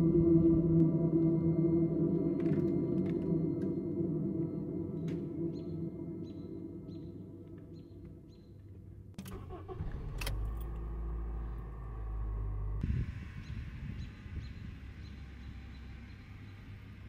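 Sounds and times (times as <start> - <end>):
car engine idling: 9.2 - 17.0.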